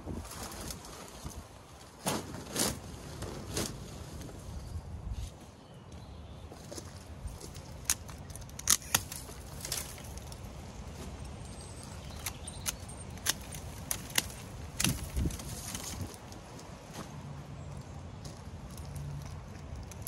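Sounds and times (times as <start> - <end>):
sharp clicks and snaps: 7.8 - 9.3.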